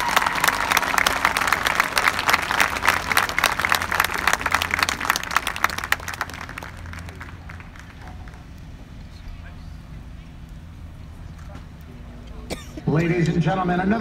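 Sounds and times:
crowd clapping: 0:00.0 - 0:08.8.

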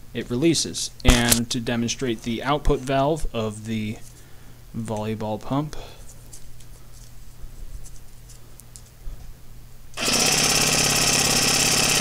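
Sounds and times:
reciprocating saw running: 0:10.0 - 0:12.0.

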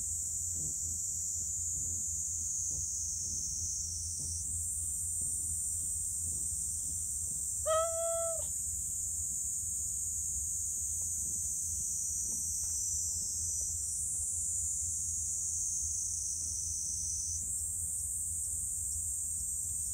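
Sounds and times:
high drone of insects: 0:00.0 - 0:19.9
cat meowing: 0:07.7 - 0:08.5.

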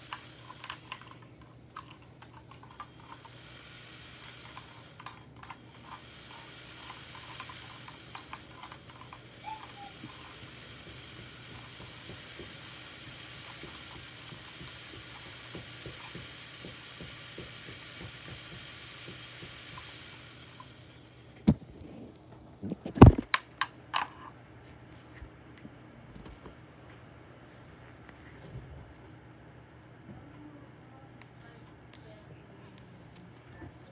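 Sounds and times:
small electric motor whirring: 0:00.0 - 0:21.4.

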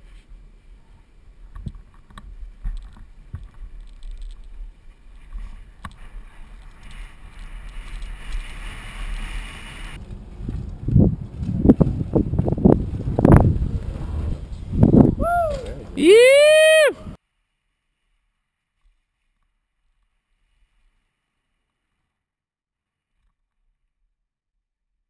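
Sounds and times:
bike tyres rumbling on dirt: 0:01.4 - 0:17.2
wind buffeting microphone: 0:09.8 - 0:17.2.

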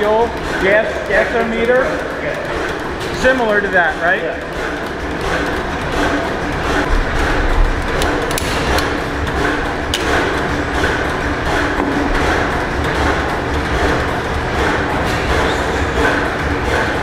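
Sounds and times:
stationary engines knocking: 0:00.0 - 0:17.0.

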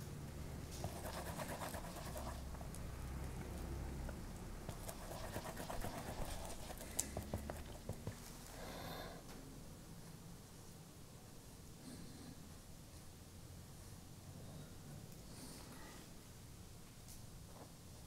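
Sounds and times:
paintbrush scratching on metal palette: 0:00.8 - 0:02.6, 0:04.7 - 0:08.2.

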